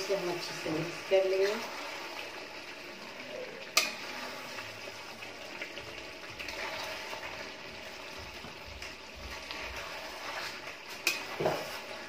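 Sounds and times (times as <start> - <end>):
curry sizzling in a pan: 0.0 - 12.0
ladle scraping pan: 3.7 - 4.9, 6.4 - 8.2, 8.8 - 12.0.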